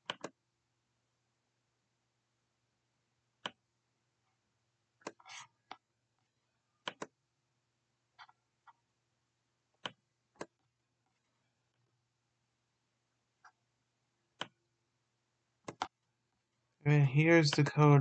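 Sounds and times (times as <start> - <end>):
computer mouse clicking: 0.0 - 0.4, 3.4 - 3.6, 6.8 - 7.1, 9.8 - 10.6, 14.3 - 14.6, 15.6 - 16.0.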